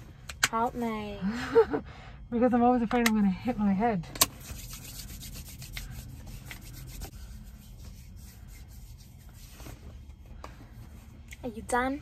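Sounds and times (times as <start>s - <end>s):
hands rubbing together: 4.4s - 9.8s.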